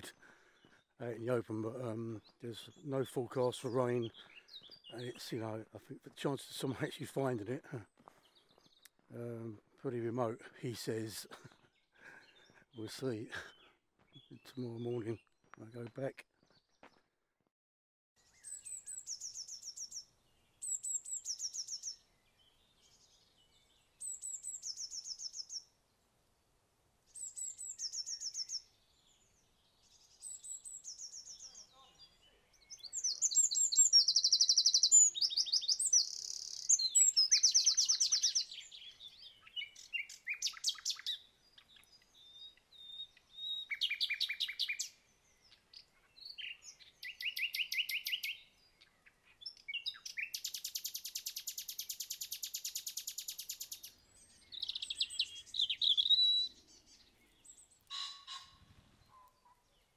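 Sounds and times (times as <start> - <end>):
blue tit singing: 18.2 - 25.7, 27.1 - 59.9
wren trilling song: 18.2 - 25.7, 27.1 - 59.9.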